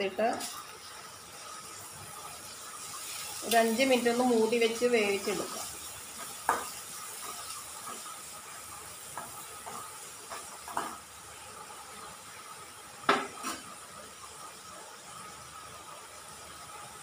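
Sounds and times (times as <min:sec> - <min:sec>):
faint steady hiss: 0:00.0 - 0:17.0
metal spoon scraping a pan: 0:05.2 - 0:11.0, 0:13.3 - 0:13.7
spoon knocking against pan: 0:06.4 - 0:06.8.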